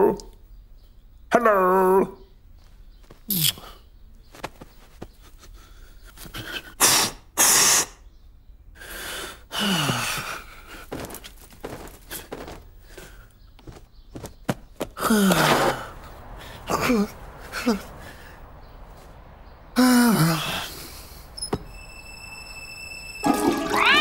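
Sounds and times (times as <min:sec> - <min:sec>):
sneeze-like vocal bursts: 0:06.8 - 0:08.0
falling-pitch grunts: 0:14.9 - 0:18.3.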